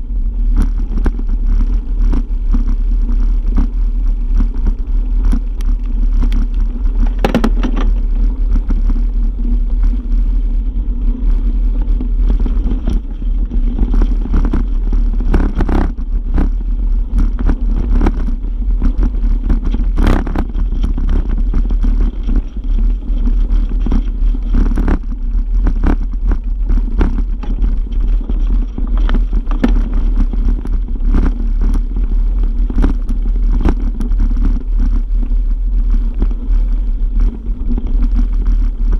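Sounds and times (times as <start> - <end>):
bike tyres rumbling on gravel: 0.0 - 38.9
wheels knocking on stones: 6.2 - 8.2, 25.6 - 31.4.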